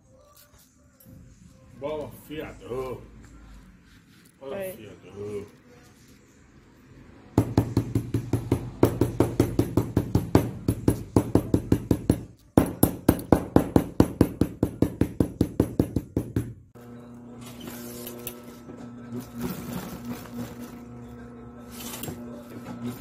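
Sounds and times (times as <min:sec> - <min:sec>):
hammer beating on leather strap: 0:07.4 - 0:16.6.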